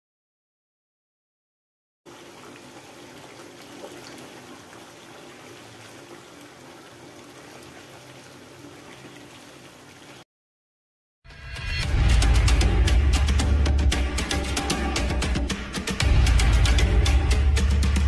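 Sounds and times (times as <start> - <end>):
sauce simmering in frying pan: 2.1 - 10.2.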